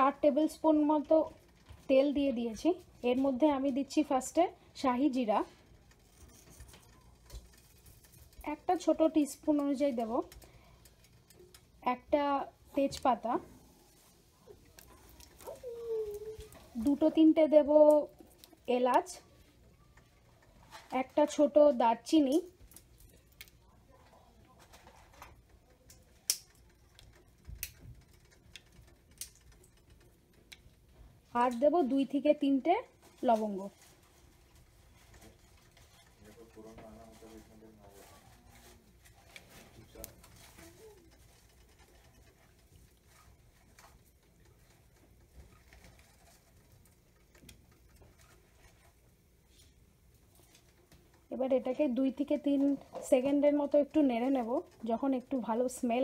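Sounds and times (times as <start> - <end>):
spices crackling in hot oil: 24.9 - 36.2.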